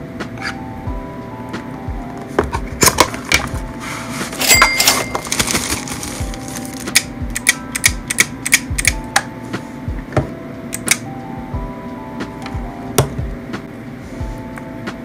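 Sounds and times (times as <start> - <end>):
plastic wrapping crinkle: 4.2 - 7.0.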